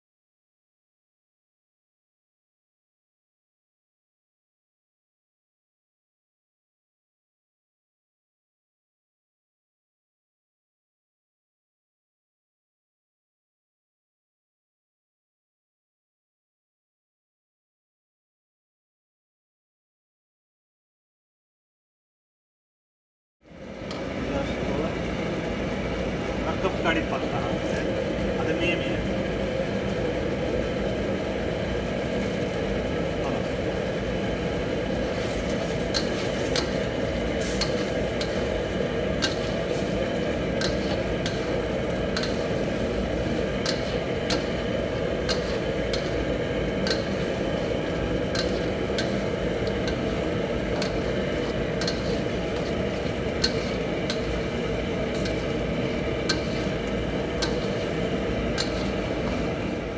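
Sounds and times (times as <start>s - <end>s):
kitchen roar with hum: 23.4s - 59.9s
metal spatula scraping a wok: 35.0s - 59.6s.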